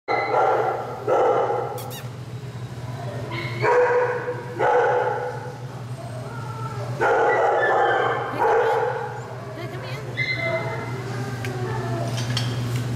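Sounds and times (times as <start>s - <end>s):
dog barking with echo: 0.1s - 1.7s, 3.4s - 5.4s, 7.0s - 9.1s.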